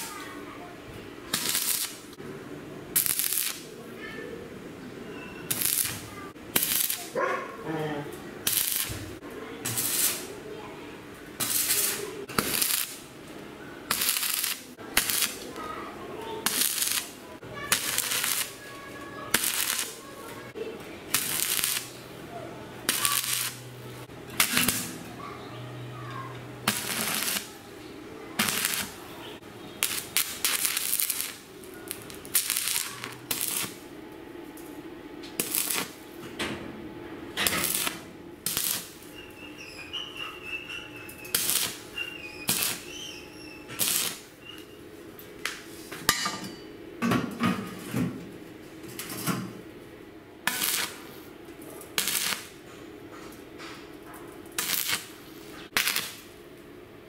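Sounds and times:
welding arc crackle and sizzle: 0.0s - 0.4s, 1.3s - 2.2s, 2.9s - 3.7s, 5.5s - 7.2s, 8.4s - 10.4s, 11.3s - 13.2s, 13.9s - 15.6s, 16.2s - 22.1s, 22.8s - 25.1s, 26.2s - 27.6s, 28.4s - 33.9s, 35.3s - 36.1s, 37.3s - 39.2s, 41.2s - 44.4s, 50.4s - 52.6s, 54.4s - 56.4s.

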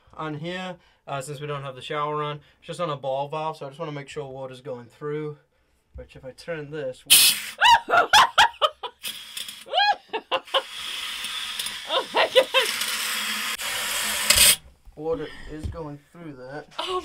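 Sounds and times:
water spraying into plastic bucket: 7.1s - 7.6s, 10.5s - 14.7s
person squealing with laughter: 7.5s - 9.0s, 9.7s - 10.8s, 11.8s - 12.9s.

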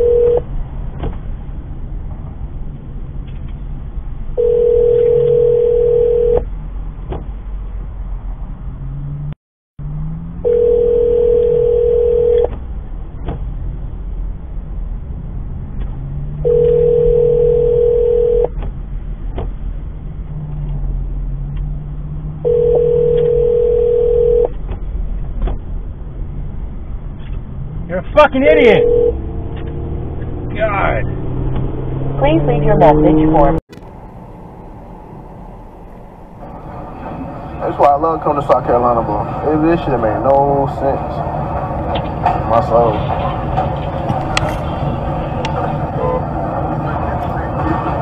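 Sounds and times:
telephone ringback tone: 0.0s - 0.4s, 4.4s - 6.4s, 10.4s - 12.5s, 16.4s - 18.5s, 22.4s - 24.5s, 28.8s - 29.2s
road and engine noise: 0.0s - 48.0s.

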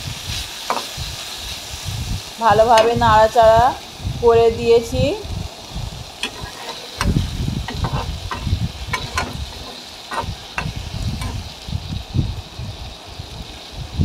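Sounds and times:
faint frying sizzle: 0.0s - 14.0s
spatula knocking against pan: 6.2s - 11.4s
spatula scraping in metal pan: 6.2s - 11.6s.

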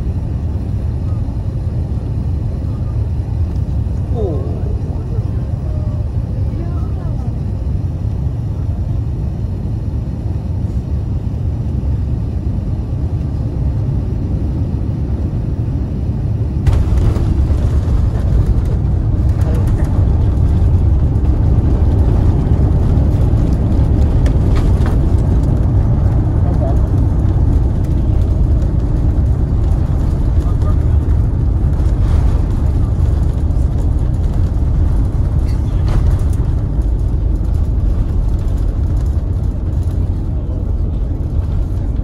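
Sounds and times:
airplane cabin low rumble: 0.0s - 42.0s.

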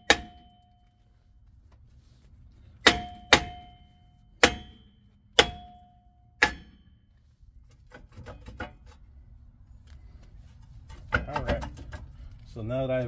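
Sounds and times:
hammer striking metal rotor: 2.8s - 6.9s.

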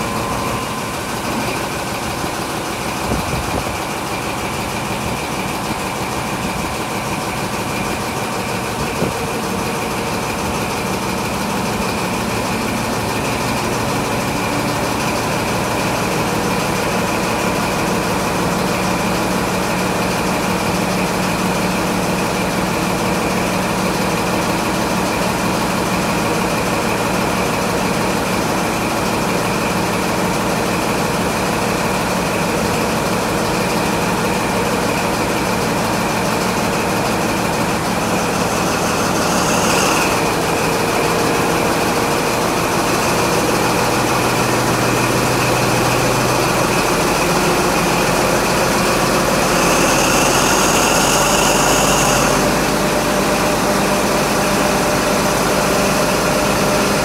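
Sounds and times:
diesel engine idling with whine: 0.0s - 57.0s.

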